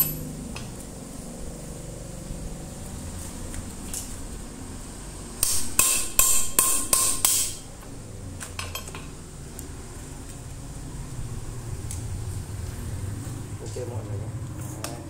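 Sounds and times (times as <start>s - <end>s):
hammer tapping on metal: 5.4s - 7.6s.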